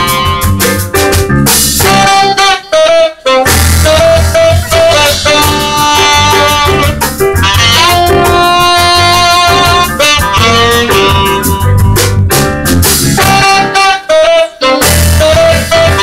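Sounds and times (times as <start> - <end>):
trumpet long held notes: 0.0 - 0.7, 1.8 - 11.9, 13.2 - 16.0
low bass notes: 0.0 - 2.4, 3.4 - 13.8, 14.7 - 16.0
drum kit: 0.0 - 16.0.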